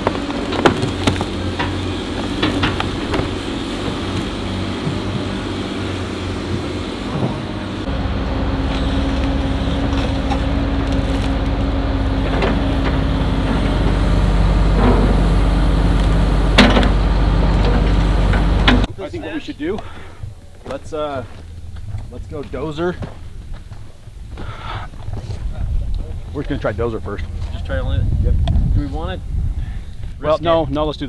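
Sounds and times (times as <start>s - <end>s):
excavator diesel engine running: 0.0s - 25.1s
steady whine: 0.0s - 30.8s.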